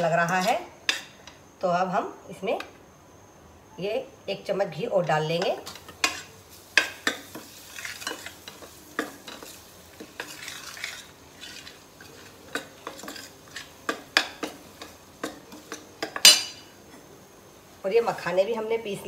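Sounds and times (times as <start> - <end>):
spoon scraping a metal pan: 0.0 - 1.3, 5.4 - 16.6.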